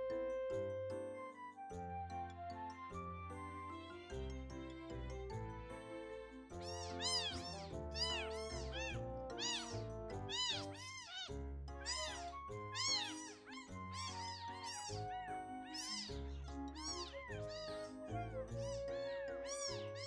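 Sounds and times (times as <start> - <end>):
soft background music: 0.0 - 20.0
kitten mewing: 6.6 - 20.0.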